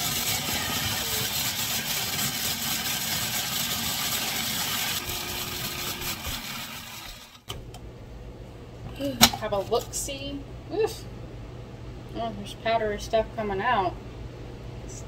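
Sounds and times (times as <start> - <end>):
food processor grinding: 0.0 - 7.5.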